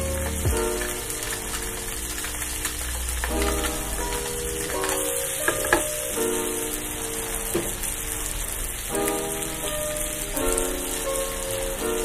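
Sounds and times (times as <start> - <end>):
background music: 0.0 - 7.5
fish sizzling in a pan: 0.0 - 12.0.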